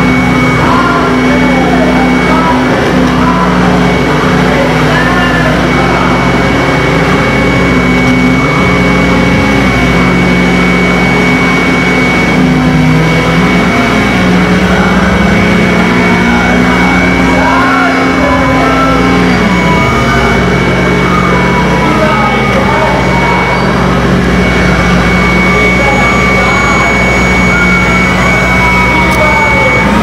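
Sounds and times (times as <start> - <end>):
dense noise wash: 0.0 - 30.0
high whistle: 0.0 - 30.0
low droning tones: 0.0 - 30.0
warbling pitch glides: 0.0 - 30.0.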